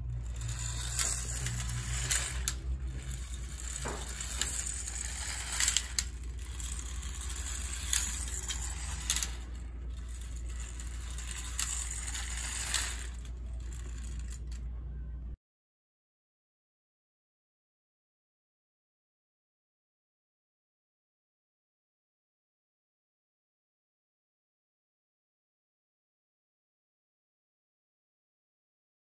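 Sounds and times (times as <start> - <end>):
clockwork motor whirring: 0.0 - 14.6
tin toy car clacking on floor: 0.1 - 14.6.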